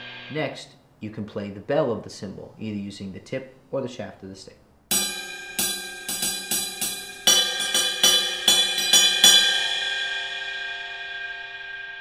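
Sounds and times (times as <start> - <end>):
cymbal bell struck with drumstick: 4.9 - 12.0.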